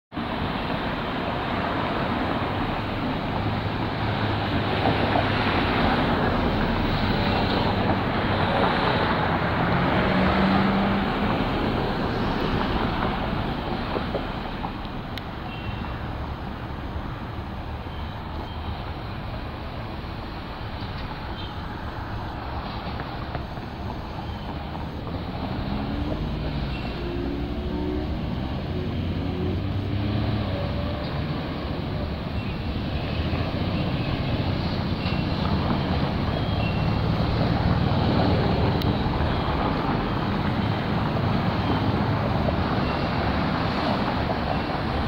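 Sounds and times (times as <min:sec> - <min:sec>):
road traffic passing: 0:00.1 - 0:45.0.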